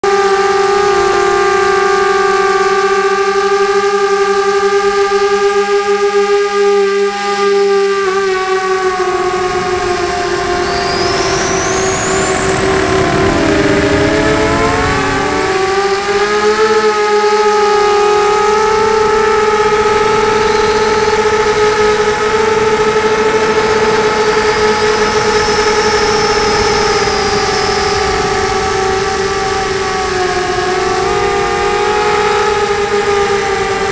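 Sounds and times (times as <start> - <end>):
faint whistle gliding upward: 0.0 - 33.9
quadcopter motors whining: 0.0 - 33.9
thin high tone: 9.1 - 15.8.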